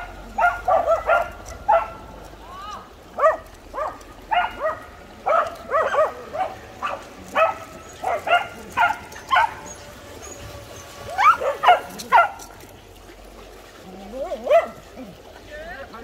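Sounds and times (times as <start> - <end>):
dog barking: 0.3 - 2.0, 3.2 - 9.7, 11.2 - 12.5, 14.4 - 14.8.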